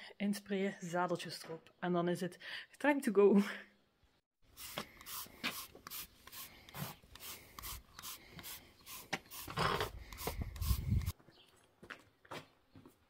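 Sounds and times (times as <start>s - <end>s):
spray bottle hissing bursts: 4.5s - 11.1s.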